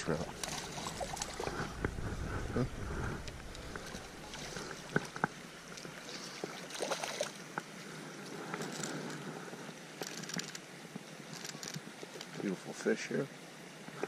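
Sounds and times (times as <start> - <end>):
grass rustling: 0.0 - 7.3
creek running over gravel: 0.0 - 14.0.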